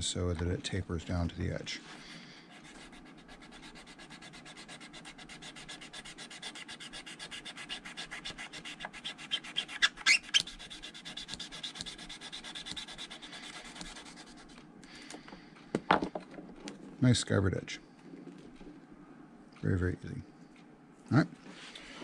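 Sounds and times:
knife shaving leather: 2.5s - 14.6s.

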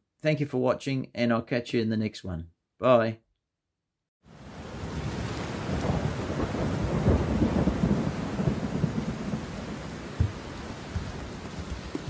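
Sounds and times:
rain falling: 4.3s - 12.0s
thunder rumbling: 4.4s - 12.0s.

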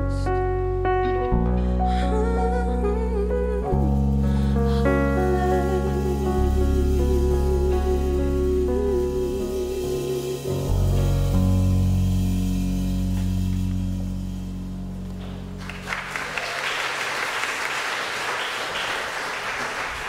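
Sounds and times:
congregation applauding: 15.1s - 20.0s.

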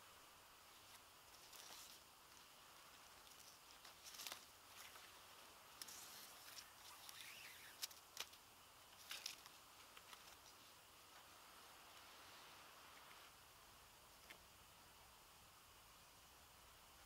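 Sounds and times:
faint rustling of cord: 0.6s - 13.4s.

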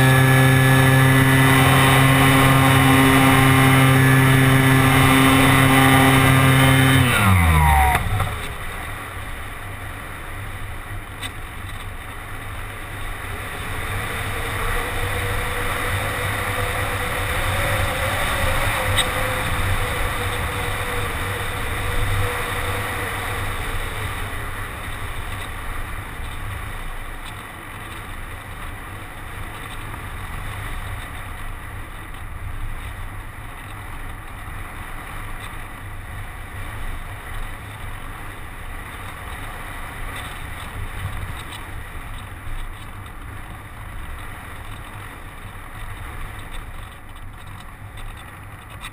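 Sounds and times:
electric motor and propeller whining: 0.0s - 9.7s, 12.4s - 26.8s
wind noise on microphone: 0.0s - 48.9s.

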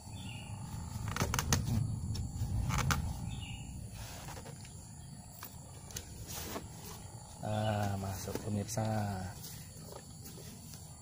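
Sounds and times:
low handling rumble: 0.0s - 6.3s.

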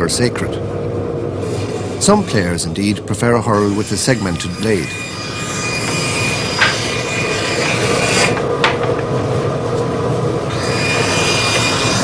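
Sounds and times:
woodworking tool rasping wood: 3.5s - 8.4s, 10.5s - 12.0s.

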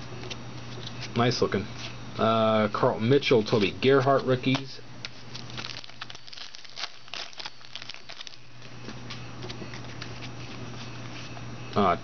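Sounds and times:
low steady hum: 0.0s - 12.0s
foil wrappers crinkling: 5.0s - 10.4s.

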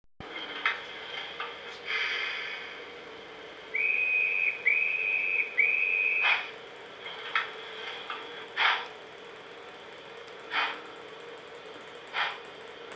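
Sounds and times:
steam hiss: 1.6s - 3.0s, 10.5s - 10.9s
model train whistle: 3.7s - 6.5s.

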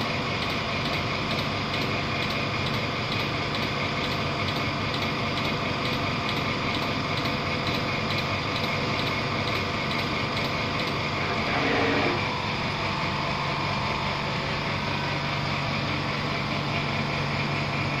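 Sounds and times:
robot motors humming: 0.0s - 18.0s
light regular ticking: 0.3s - 11.2s
whir falling in pitch: 11.2s - 15.2s.

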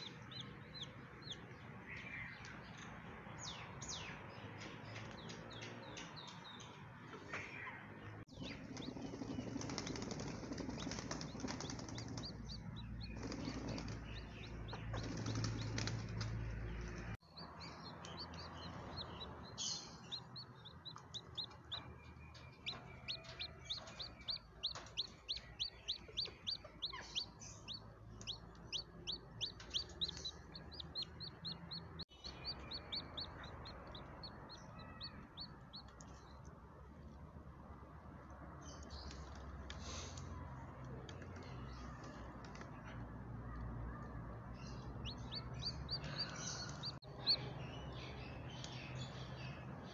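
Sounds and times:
chick peeping: 0.0s - 2.2s, 8.4s - 16.0s, 17.3s - 36.2s, 44.7s - 47.5s.

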